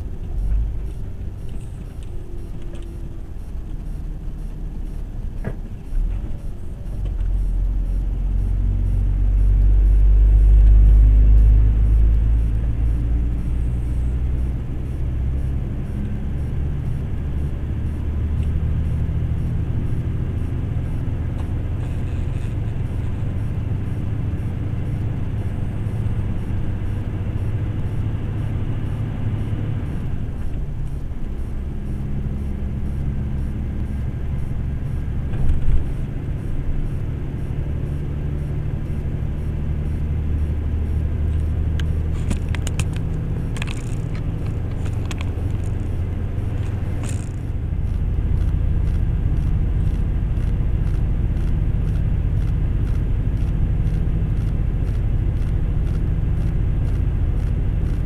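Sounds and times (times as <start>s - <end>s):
road noise: 0.0s - 58.0s
truck engine drone: 0.0s - 58.0s
light clicks and rattles: 41.8s - 46.0s.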